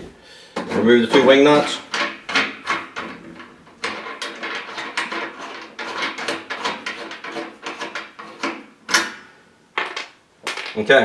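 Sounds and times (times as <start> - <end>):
metal shutter scraping and clattering: 0.6 - 8.7.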